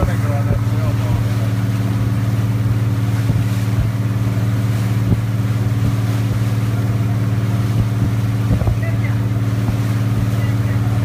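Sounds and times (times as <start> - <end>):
boat engine humming: 0.0 - 11.0.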